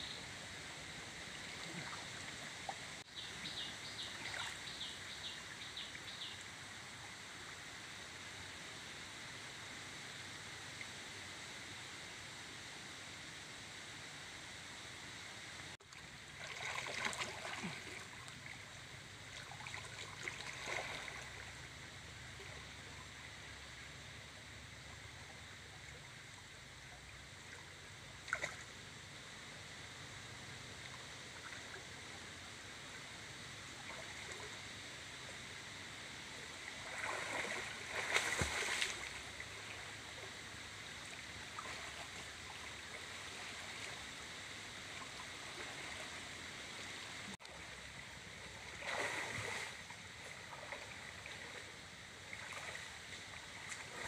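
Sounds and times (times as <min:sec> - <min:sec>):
river flowing: 0:00.0 - 0:54.0
water sloshing and splashing: 0:15.8 - 0:18.6, 0:19.2 - 0:21.5, 0:36.7 - 0:40.3, 0:41.0 - 0:44.2, 0:48.5 - 0:51.7, 0:52.3 - 0:54.0.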